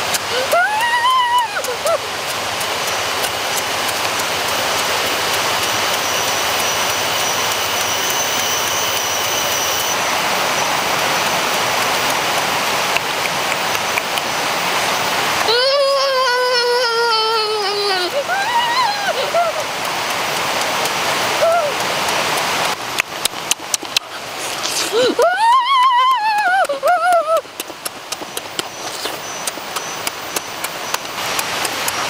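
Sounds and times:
rushing water: 0.0 - 32.0
high falling vocal tone: 15.4 - 19.6.

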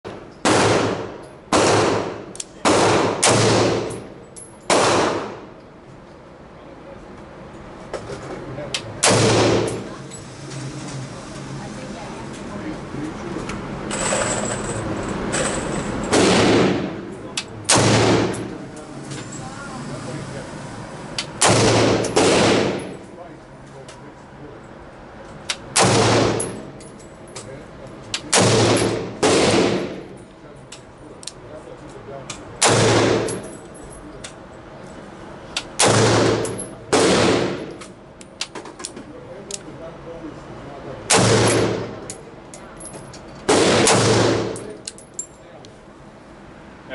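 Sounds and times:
rifle shots echoing indoors: 0.4 - 4.1, 4.7 - 5.5, 9.0 - 9.8, 16.1 - 17.0, 17.7 - 18.4, 21.4 - 23.0, 25.7 - 26.6, 28.3 - 30.0, 32.6 - 33.4, 35.8 - 37.6, 41.1 - 41.9, 43.5 - 44.6.

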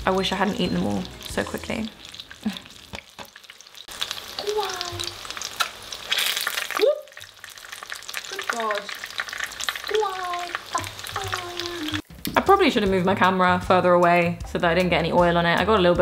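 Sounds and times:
oil sizzling and popping: 0.0 - 12.6.

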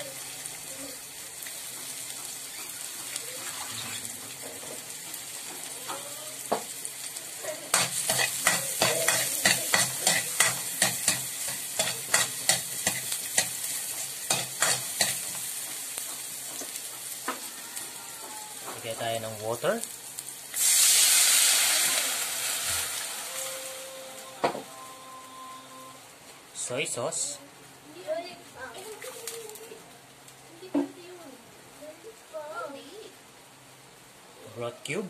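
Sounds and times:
garlic and onion sizzling in oil: 0.0 - 35.0
spatula scraping a wok: 1.9 - 5.7, 7.7 - 17.5.

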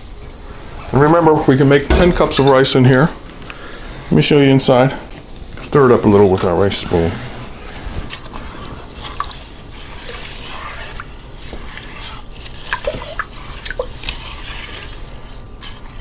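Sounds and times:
rice and water stirred in a pot: 0.0 - 16.0
water drips and splashes: 8.8 - 15.1.

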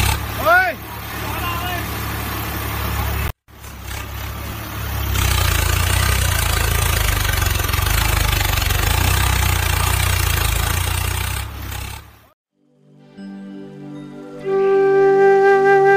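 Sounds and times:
tractor diesel engine running: 0.0 - 12.4.

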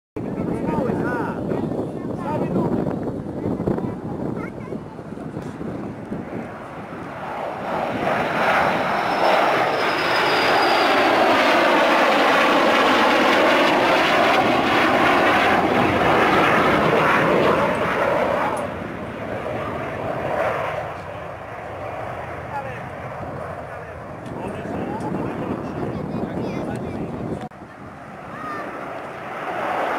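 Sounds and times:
jet roar: 0.2 - 29.9
high whistle sliding down: 9.0 - 11.2.

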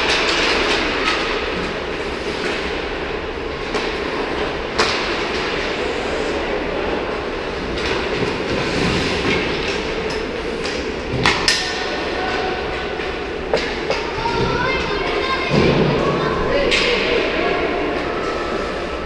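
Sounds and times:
hockey sticks clacking pucks: 0.0 - 5.8, 7.4 - 15.8
skate blades scraping ice: 8.2 - 10.8.

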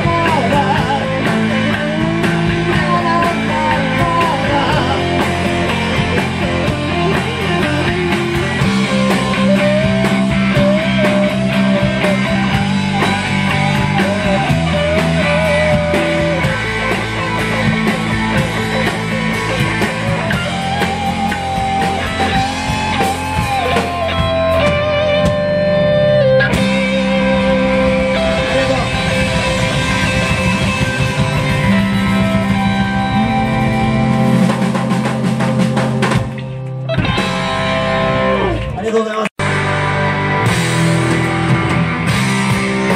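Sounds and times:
bass guitar: 0.0 - 42.9
bending lead guitar melody: 0.0 - 42.9
distorted electric guitars: 0.0 - 42.9
drums: 0.0 - 42.9.

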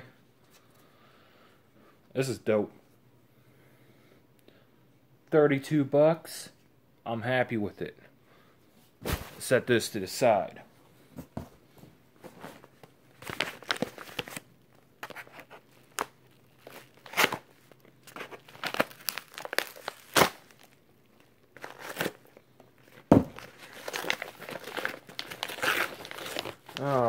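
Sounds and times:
padded envelope crinkling: 12.4 - 27.0
envelope ripping: 13.2 - 20.8, 21.6 - 22.4, 23.3 - 27.0.

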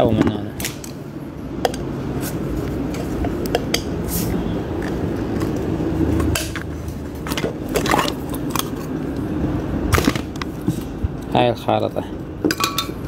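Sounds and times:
low background noise: 0.0 - 13.0.

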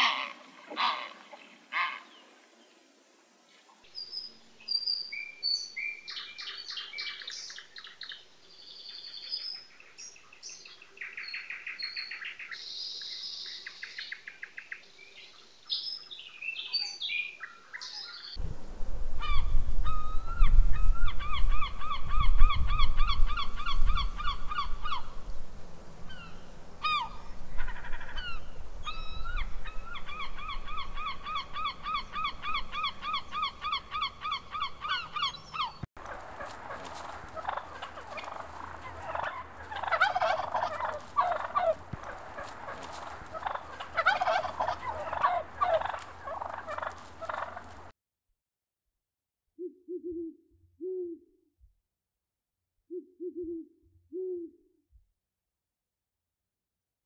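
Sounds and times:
gull calls: 0.0 - 2.2, 19.2 - 25.1, 26.1 - 47.8.

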